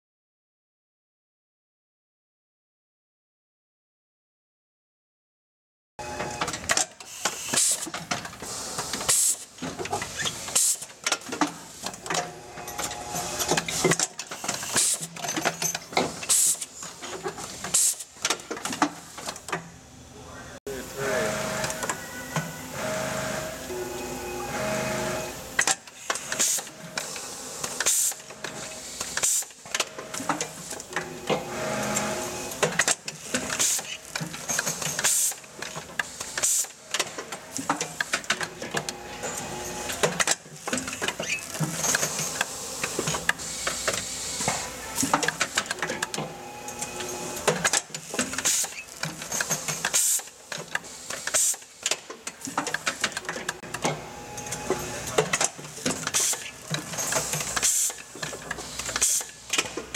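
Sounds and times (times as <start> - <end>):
air hiss bursts: 7.1 - 9.5, 16.2 - 16.7.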